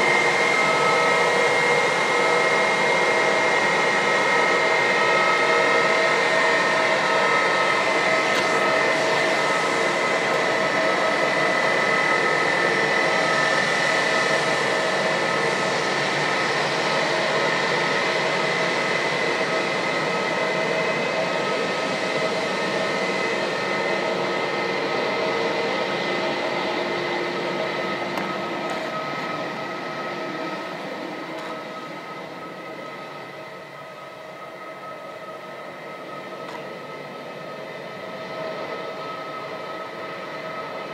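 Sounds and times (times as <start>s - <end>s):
jet engines whining: 0.0s - 40.9s.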